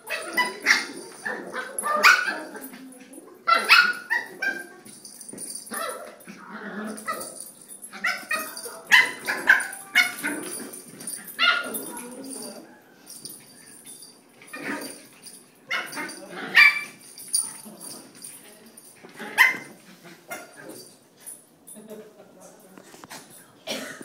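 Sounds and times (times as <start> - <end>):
puppies barking and yipping: 0.0 - 2.7, 6.9 - 18.2.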